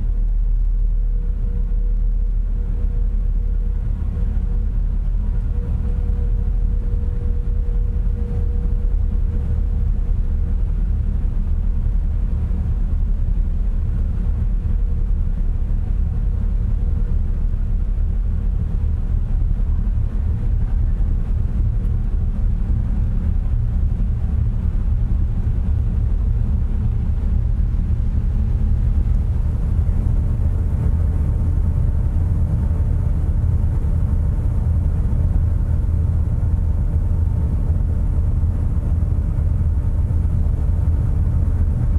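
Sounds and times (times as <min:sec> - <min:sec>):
faint steady hum: 0:00.0 - 0:41.9
ship engines rumbling: 0:19.7 - 0:41.9
higher hum: 0:25.9 - 0:41.9.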